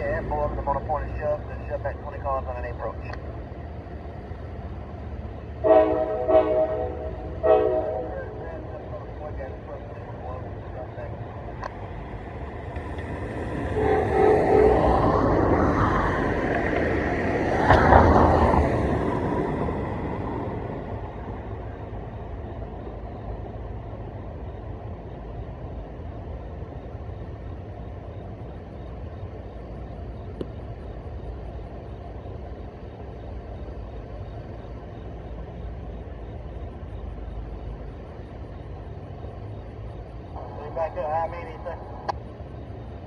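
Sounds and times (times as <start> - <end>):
steady low rumble: 0.0 - 43.0
vehicle passing by: 11.8 - 22.0.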